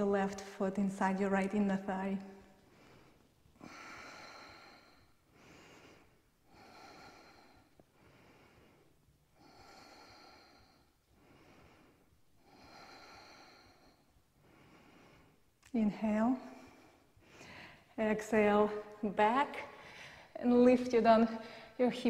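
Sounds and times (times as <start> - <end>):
woman breathing: 2.2 - 18.0, 19.6 - 20.4, 21.2 - 21.9.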